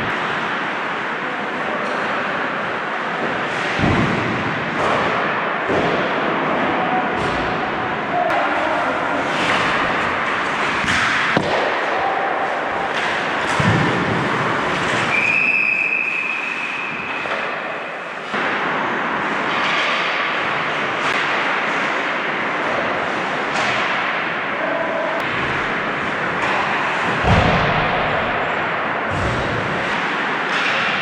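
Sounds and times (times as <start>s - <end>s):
sticks clacking on puck: 9.2s - 15.4s, 29.1s - 31.0s.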